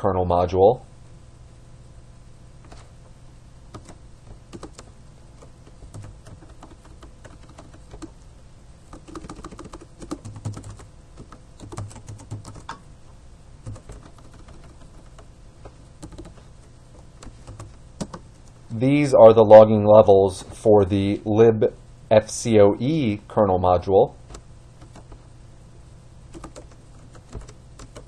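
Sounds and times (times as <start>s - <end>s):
keyboard typing clicks: 3.7s - 8.1s, 8.9s - 12.8s, 13.6s - 15.3s, 16.0s - 18.6s, 24.3s - 25.2s, 26.3s - 28.0s.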